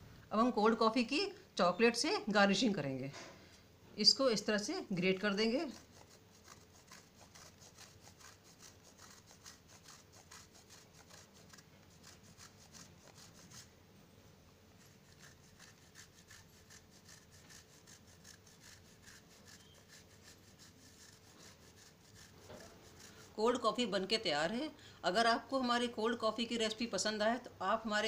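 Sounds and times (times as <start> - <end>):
chocolate rasping on metal grater: 4.5 - 13.7, 14.8 - 24.4.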